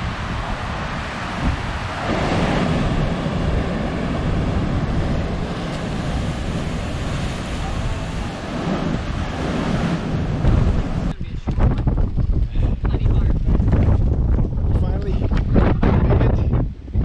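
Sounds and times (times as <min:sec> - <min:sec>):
surf breaking on rocks: 0:00.0 - 0:11.1
wind buffeting microphone: 0:00.0 - 0:17.0.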